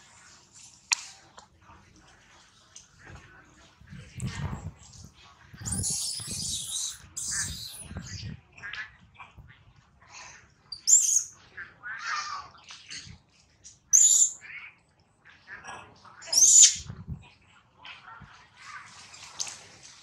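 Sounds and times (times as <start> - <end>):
baby monkey screaming: 5.6 - 7.9, 10.8 - 11.3, 16.3 - 16.8
baby monkey squealing: 5.6 - 7.9, 10.8 - 11.3, 14.0 - 14.4, 16.3 - 16.9.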